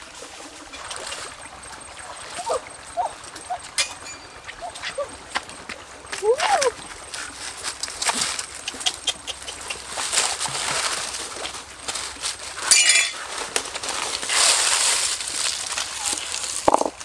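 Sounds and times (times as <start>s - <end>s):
dry leaves rustling on rock: 9.8s - 17.0s.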